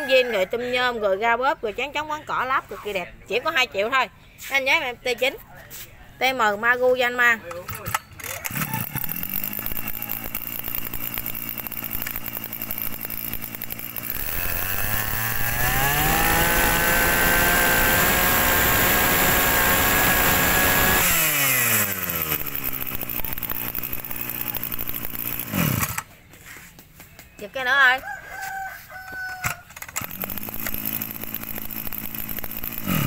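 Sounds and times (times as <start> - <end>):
brush cutter engine revving: 7.0 - 26.3, 29.4 - 33.0.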